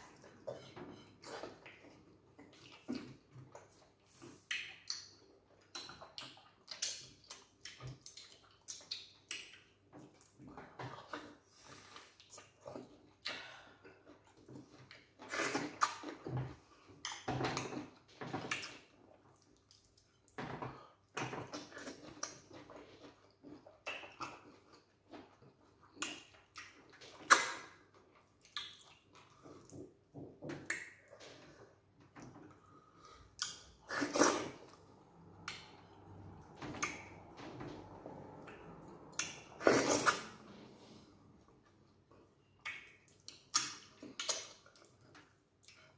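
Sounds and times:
wet chewing and slurping: 0:32.2 - 0:37.4, 0:38.3 - 0:41.4.

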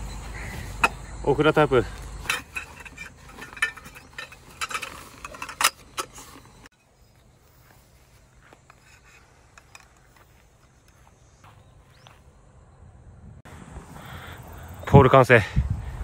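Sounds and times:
metal poles clinking and rattling: 0:00.7 - 0:07.0, 0:08.6 - 0:11.0
faint clicks of poles fitting: 0:08.6 - 0:11.0.

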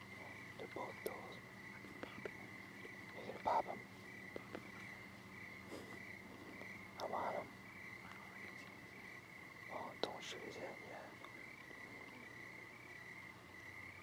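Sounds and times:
high insect trill: 0:00.0 - 0:14.0
soft breathy sounds: 0:05.6 - 0:09.0.

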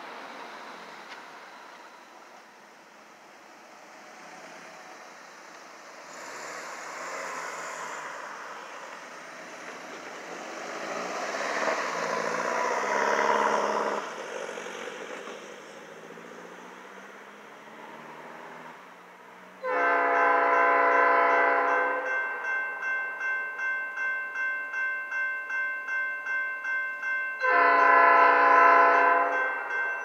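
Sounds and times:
car driving past: 0:05.8 - 0:09.4, 0:10.2 - 0:18.8.

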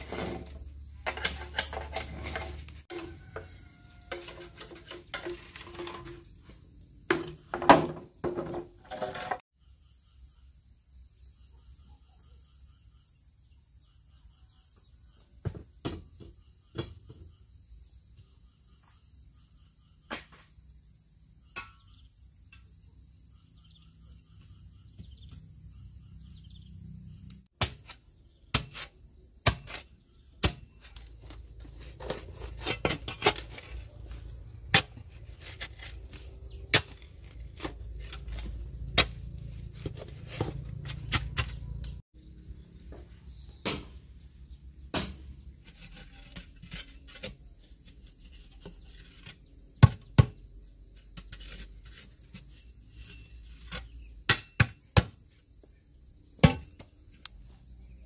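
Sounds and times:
insects chirping: 0:00.0 - 0:08.8, 0:09.6 - 0:58.0.

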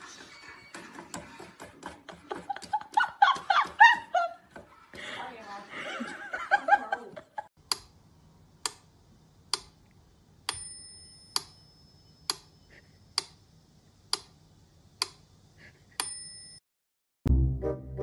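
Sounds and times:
metronome bell ringing: 0:10.5 - 0:12.2, 0:16.0 - 0:16.6.

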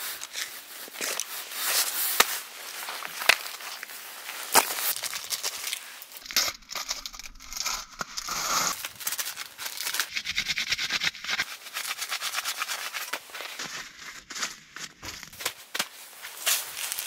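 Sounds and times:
plastic wrappers tearing and crinkling: 0:04.5 - 0:13.7, 0:14.3 - 0:17.0.

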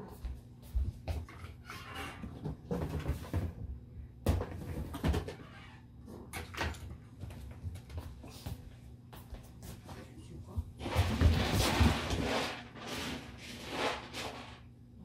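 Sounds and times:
footsteps on vinyl floor: 0:00.0 - 0:01.5, 0:07.1 - 0:12.5.

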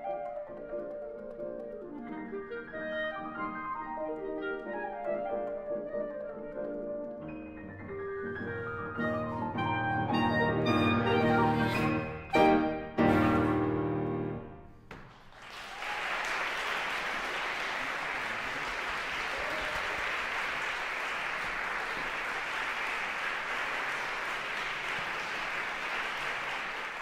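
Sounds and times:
clarinet and piano chord: 0:02.3 - 0:14.5
audience applause: 0:15.0 - 0:27.0.

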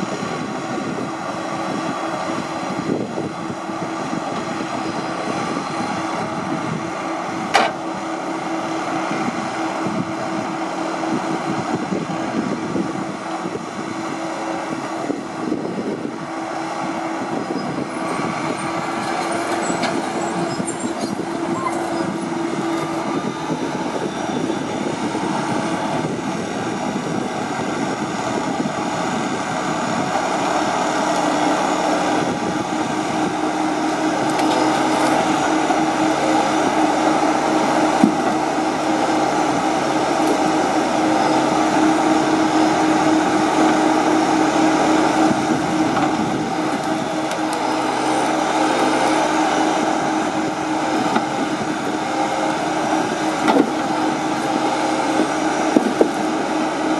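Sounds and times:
diesel engine under load: 0:00.0 - 0:56.9
hydraulic crane hum: 0:00.0 - 0:56.9.

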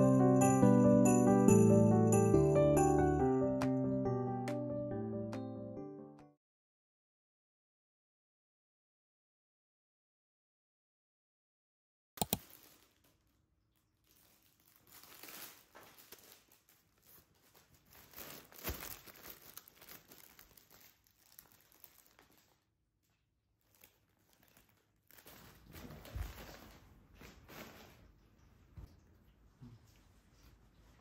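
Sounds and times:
plastic packaging crinkling: 0:12.2 - 0:22.7, 0:23.6 - 0:28.0.

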